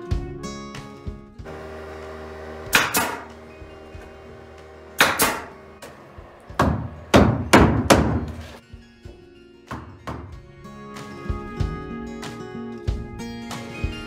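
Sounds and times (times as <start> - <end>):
hammer knocking on wood block: 6.5 - 8.4.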